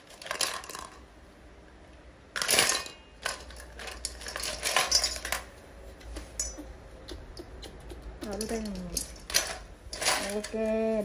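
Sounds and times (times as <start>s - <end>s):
small clinks: 2.4s - 5.5s, 6.3s - 6.7s, 8.4s - 10.7s.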